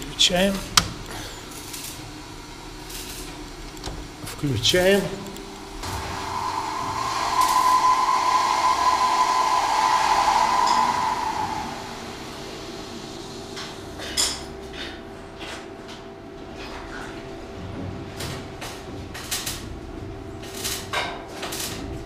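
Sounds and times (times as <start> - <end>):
pump humming: 5.0 - 14.0
water rushing through pipes: 5.5 - 14.0.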